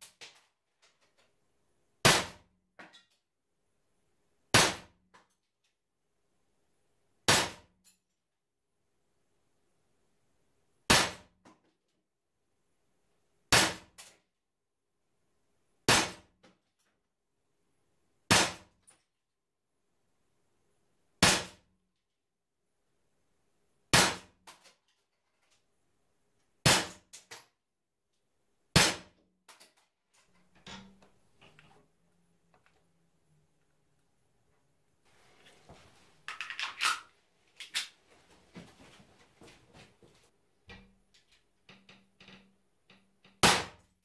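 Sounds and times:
air pistol shots: 0:28.8 - 0:29.2, 0:43.4 - 0:43.8.

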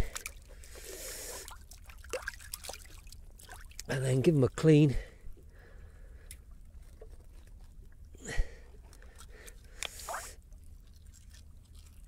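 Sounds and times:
wet squelches of gutting fish: 0:08.7 - 0:12.0.

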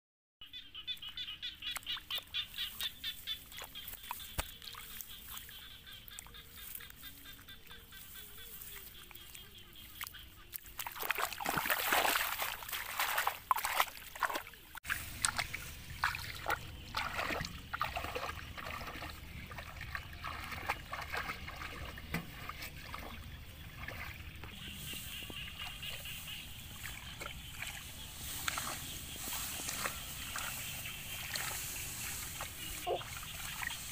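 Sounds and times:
water sloshing and splashing: 0:01.7 - 0:33.9
plant stalks rustling: 0:02.1 - 0:05.6, 0:24.7 - 0:33.9.

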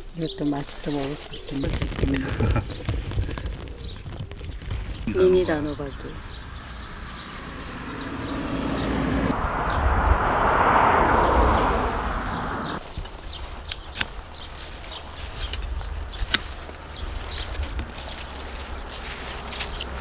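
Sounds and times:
birds chirping: 0:00.0 - 0:20.0.

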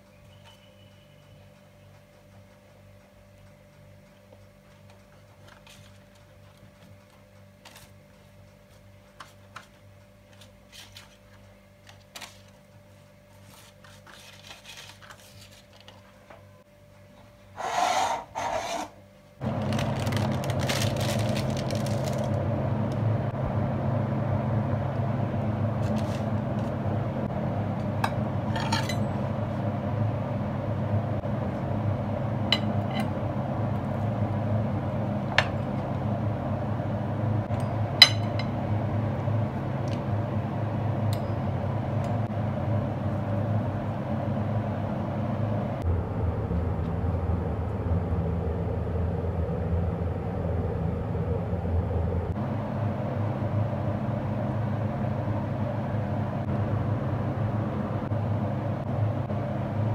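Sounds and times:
steady whirring with low hum: 0:00.0 - 0:59.9
pizza cutter scraping plate: 0:17.6 - 0:19.0.

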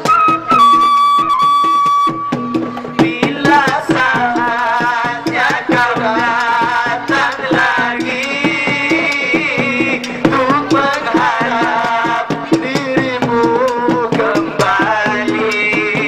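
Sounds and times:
bamboo wind instrument note: 0:00.0 - 0:02.6
repeating drum rhythm: 0:00.0 - 0:16.0
man singing: 0:02.9 - 0:16.0.

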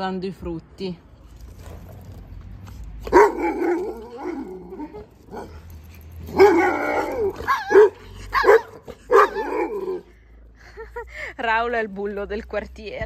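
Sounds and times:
dogs barking: 0:03.0 - 0:10.1.

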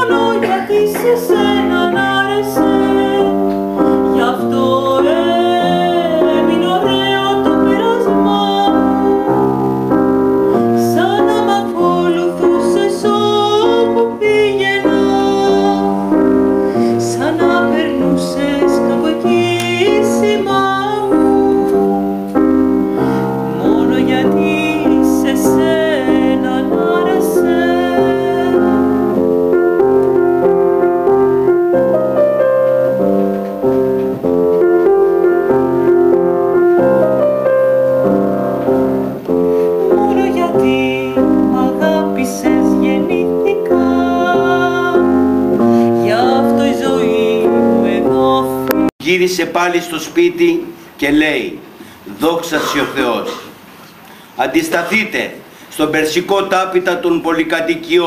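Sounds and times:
woman singing classically: 0:00.0 - 0:30.4, 0:39.3 - 0:48.9
upright piano playing: 0:00.0 - 0:53.8.

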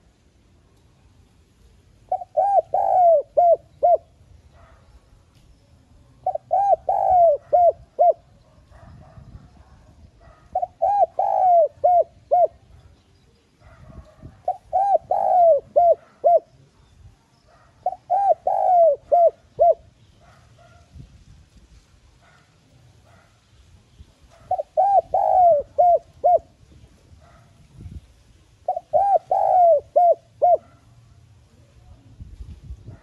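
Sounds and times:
dove cooing: 0:02.0 - 0:04.8, 0:06.2 - 0:12.8, 0:13.6 - 0:16.7, 0:17.5 - 0:20.8, 0:24.3 - 0:27.5, 0:28.6 - 0:30.9.

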